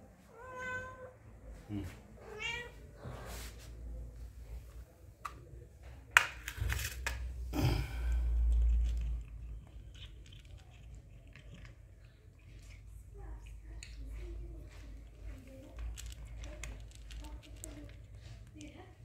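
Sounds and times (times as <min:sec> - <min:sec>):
cat crunching dry kibble: 0:08.0 - 0:19.0.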